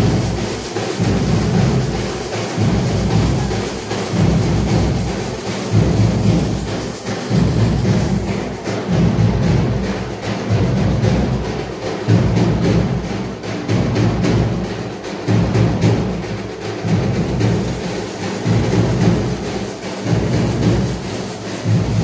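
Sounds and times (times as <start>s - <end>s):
heavy low drum beats: 0.0s - 22.0s
rapid drumstick strikes: 0.0s - 22.0s.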